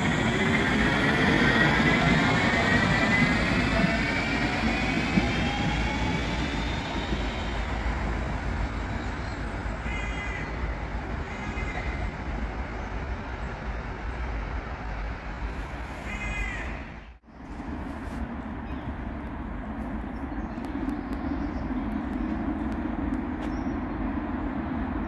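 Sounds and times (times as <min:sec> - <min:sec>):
train running rumble: 0:00.0 - 0:25.0
bird calling: 0:08.8 - 0:12.3.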